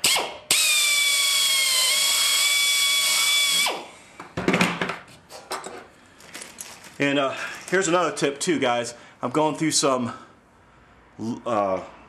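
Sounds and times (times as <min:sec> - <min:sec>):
electric drill whine: 0:00.0 - 0:04.0.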